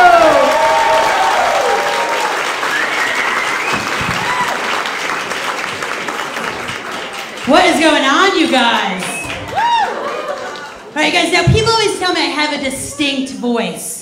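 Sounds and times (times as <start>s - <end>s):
audience applauding and cheering: 0.0s - 11.0s.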